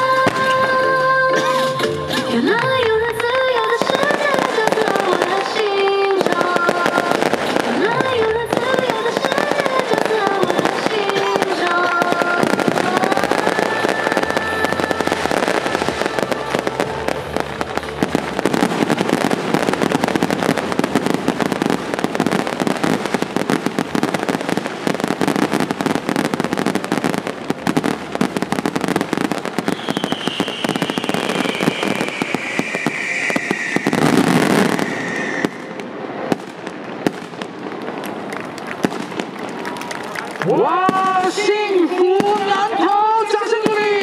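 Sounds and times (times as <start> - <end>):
fireworks crackling: 0.0 - 44.0
loud firework burst: 3.2 - 38.0
high falling whistle tone: 29.7 - 36.0.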